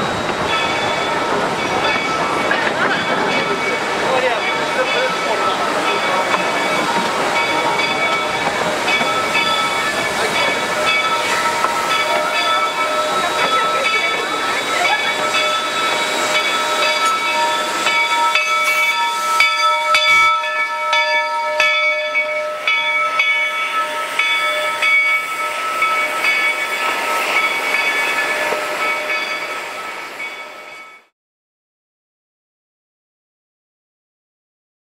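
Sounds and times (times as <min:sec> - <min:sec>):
train wheels squealing: 0:05.2 - 0:20.3.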